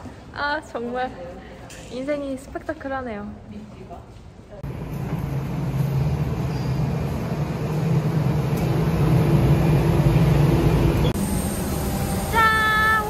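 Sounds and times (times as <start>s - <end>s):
shuttle bus engine humming: 4.6s - 13.0s.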